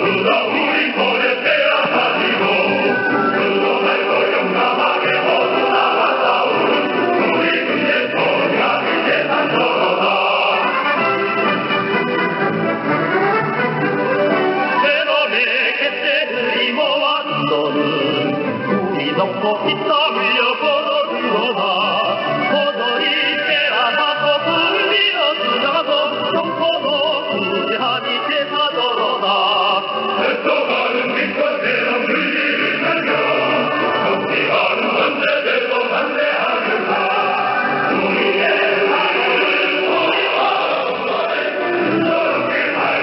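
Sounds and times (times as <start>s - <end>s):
choir singing over shortwave radio: 0.0s - 10.9s, 19.2s - 26.3s, 27.9s - 43.0s.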